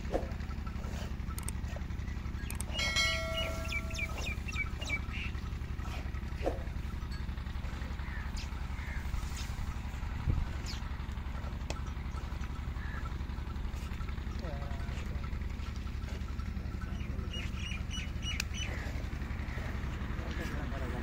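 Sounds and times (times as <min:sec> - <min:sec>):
engine idling: 0:00.0 - 0:21.0
bird chirping: 0:01.4 - 0:05.6, 0:16.8 - 0:19.0.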